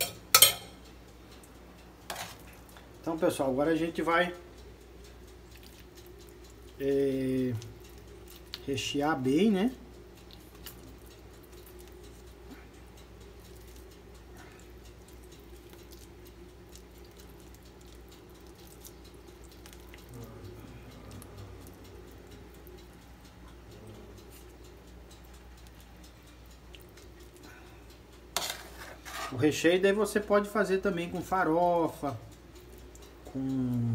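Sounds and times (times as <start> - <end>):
spoon and fork scraping food: 0.0 - 0.8, 2.0 - 2.6, 28.3 - 29.5
steady low hum: 0.0 - 33.9.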